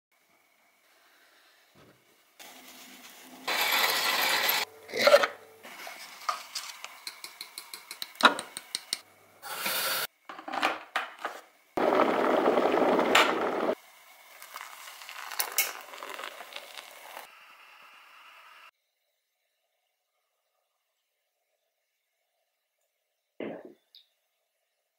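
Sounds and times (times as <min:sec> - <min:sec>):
cups and utensils clinking: 0:03.5 - 0:05.4, 0:14.4 - 0:17.3
water poured from kettle: 0:14.1 - 0:17.3.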